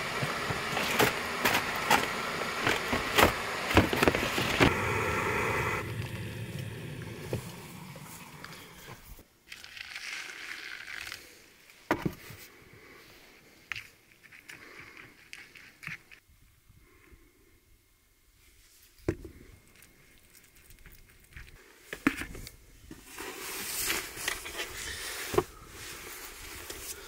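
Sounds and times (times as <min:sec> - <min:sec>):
stove burner hissing: 0:00.0 - 0:09.2
hot water pouring: 0:00.0 - 0:11.1.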